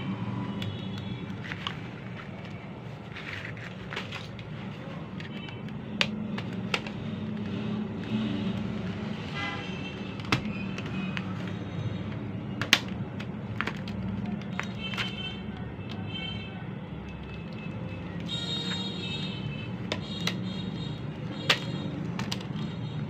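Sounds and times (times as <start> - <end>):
plastic clicks and snaps: 12.1 - 16.0, 19.8 - 20.5, 21.4 - 22.7.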